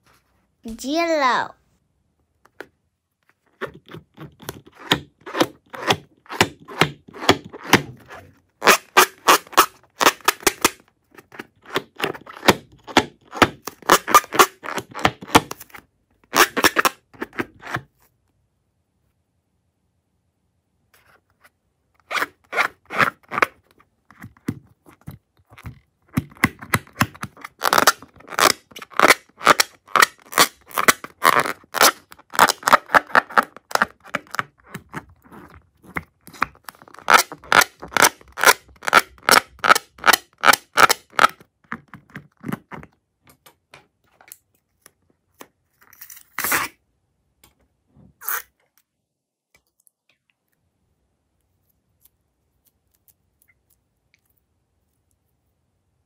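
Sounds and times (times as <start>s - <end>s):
balloon opening sharp sound: 4.7s - 10.8s, 12.0s - 15.6s, 16.3s - 17.8s.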